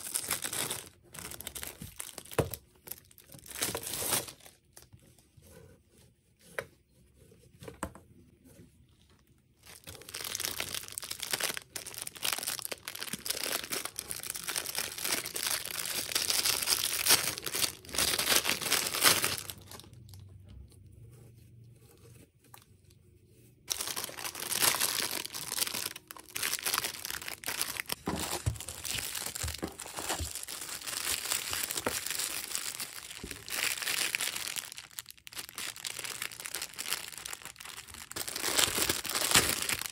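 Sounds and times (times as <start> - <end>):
plastic bags crinkling and tearing: 0.0 - 4.9, 9.6 - 20.2, 23.7 - 39.9.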